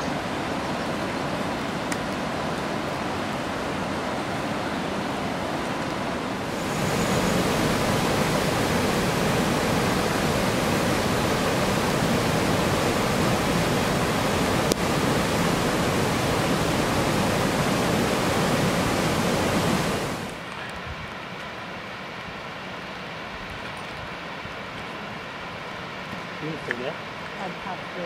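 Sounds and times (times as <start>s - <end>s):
river rapids roaring: 0.0s - 20.6s.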